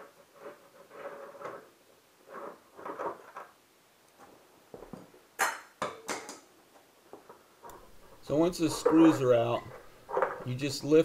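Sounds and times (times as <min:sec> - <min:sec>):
plastic parts clacking: 0:07.7 - 0:10.7.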